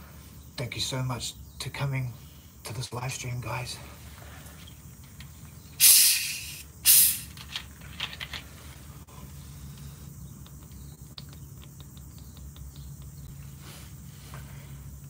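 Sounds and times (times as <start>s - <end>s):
gas hissing from bottle: 5.8s - 7.4s.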